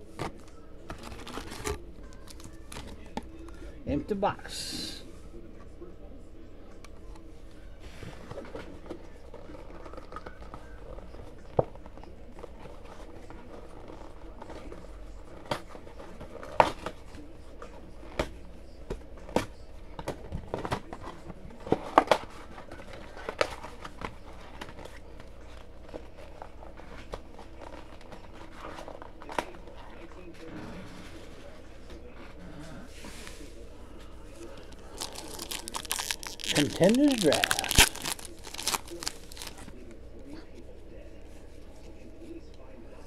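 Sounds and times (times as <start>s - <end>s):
foil packs tapping and crinkling: 34.6s - 39.7s.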